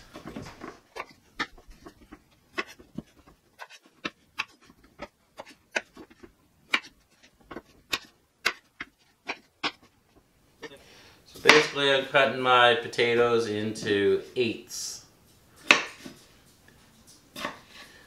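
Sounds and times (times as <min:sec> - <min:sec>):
knife chopping on cutting board: 0:00.6 - 0:09.9, 0:15.6 - 0:16.2.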